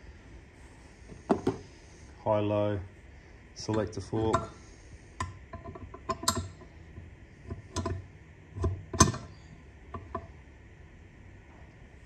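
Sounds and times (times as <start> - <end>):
metal parts clicking and tapping: 5.2 - 6.7, 7.5 - 8.0.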